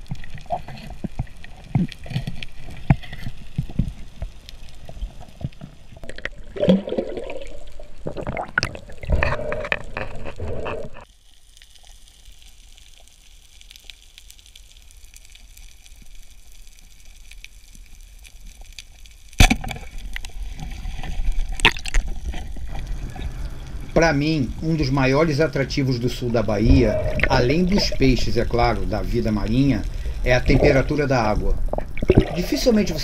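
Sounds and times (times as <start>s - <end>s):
underwater bubbling and clattering: 0.0s - 12.0s, 15.0s - 33.0s
quiet underwater hiss: 0.0s - 33.0s
rushing water: 19.4s - 33.0s.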